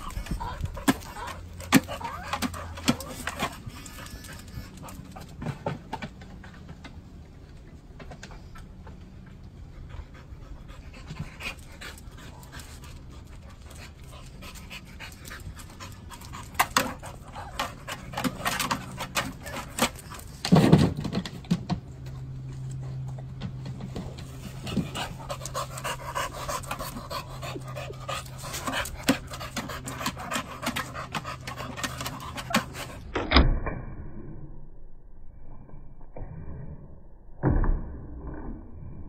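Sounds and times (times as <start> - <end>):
dog panting: 0.0 - 5.6, 9.6 - 20.4, 24.0 - 33.1.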